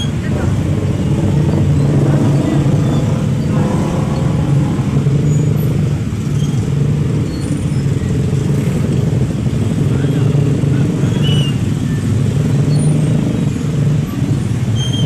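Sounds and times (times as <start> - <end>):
road noise: 0.0 - 15.0
vehicle engine drone: 0.0 - 15.0.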